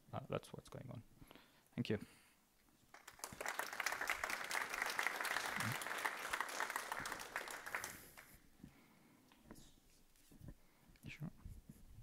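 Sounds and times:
audience applauding: 2.9s - 8.4s.

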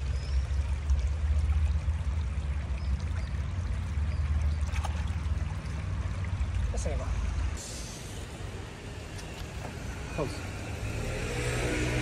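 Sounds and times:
river water running: 0.0s - 12.0s.

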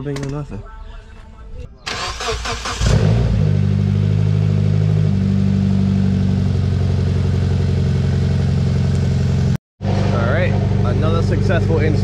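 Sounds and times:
car engine revving and idling: 2.5s - 12.0s.

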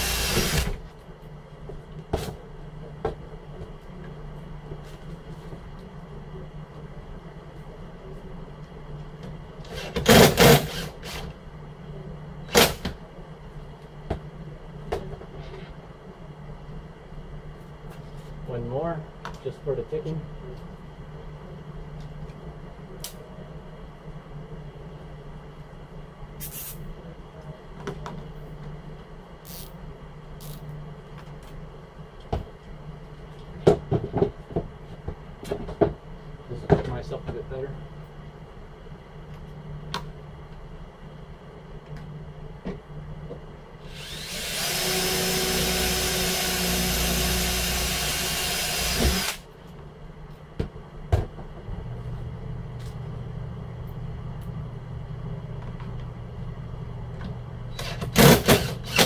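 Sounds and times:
cordless drill driving screws: 0.0s - 0.8s, 43.9s - 49.4s, 57.8s - 59.0s
steady low hum: 0.0s - 59.0s.

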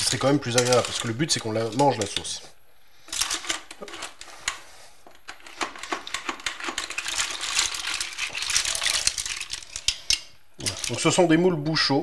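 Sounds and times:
mussel shells clattering in metal pot: 0.0s - 2.4s, 5.4s - 11.2s.

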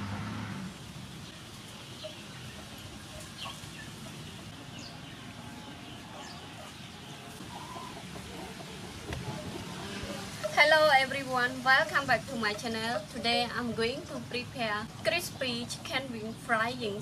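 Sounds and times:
low clucking bird calls: 1.2s - 10.6s.

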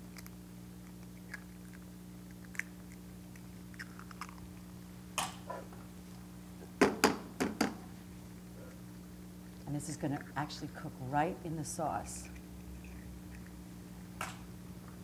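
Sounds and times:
eggshells cracking: 0.0s - 4.7s.

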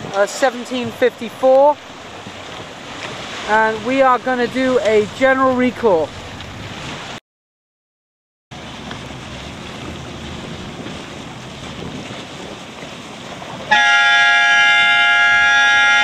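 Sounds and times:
water: 0.0s - 7.2s, 8.5s - 16.0s
wind: 0.0s - 7.2s, 8.5s - 16.0s
signal horn blast: 13.7s - 16.0s.

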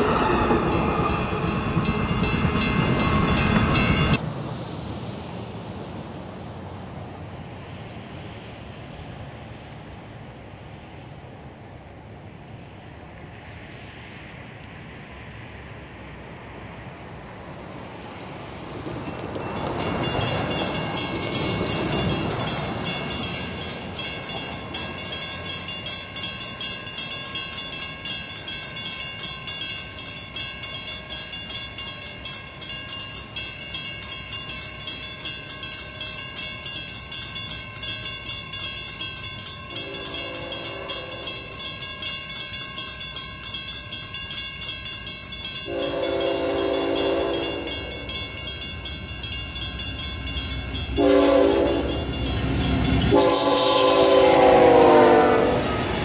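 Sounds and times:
crossing warning bell ringing: 0.0s - 4.2s, 19.0s - 56.0s
train horn blasts: 39.7s - 41.5s, 45.7s - 48.0s, 50.9s - 52.2s, 52.8s - 56.0s.

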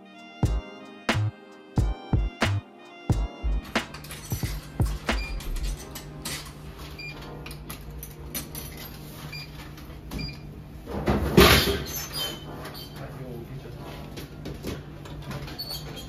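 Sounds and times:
coins clicking into slot: 3.7s - 6.6s.

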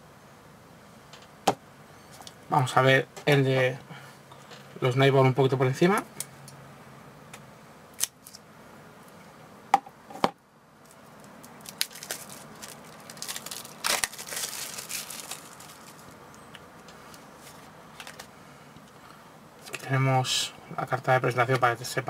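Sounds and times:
plastic shrink-wrap crinkling: 10.9s - 16.2s.

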